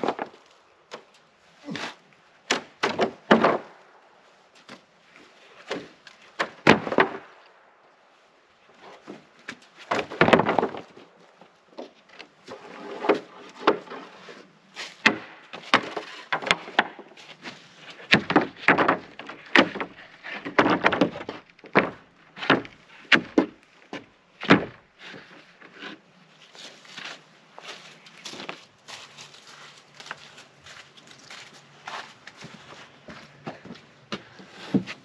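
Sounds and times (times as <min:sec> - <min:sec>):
boards scraping: 0:00.0 - 0:03.8, 0:08.7 - 0:30.6, 0:31.8 - 0:35.0
wooden boards knocking: 0:09.9 - 0:11.0, 0:18.0 - 0:24.8.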